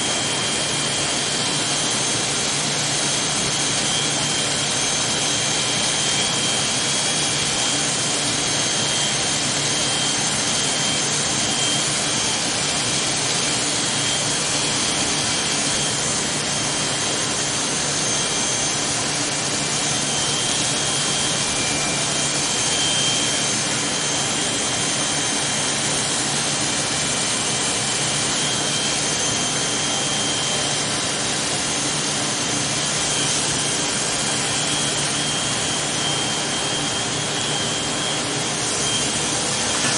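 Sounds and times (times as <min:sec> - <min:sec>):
electric hair clippers buzzing: 0:38.0 - 0:39.9.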